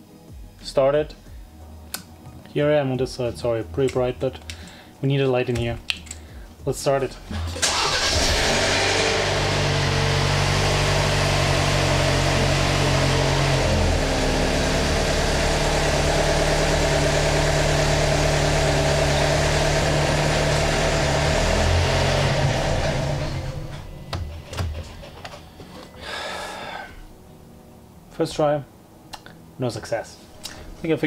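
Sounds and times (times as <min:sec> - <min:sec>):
car engine idling: 0:07.6 - 0:25.1.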